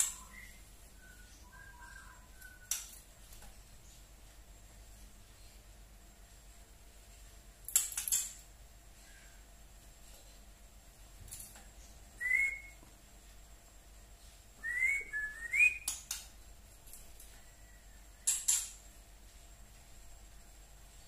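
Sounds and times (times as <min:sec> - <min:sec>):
bird whistled calls: 0:00.0 - 0:02.8, 0:12.2 - 0:12.8, 0:14.6 - 0:16.0.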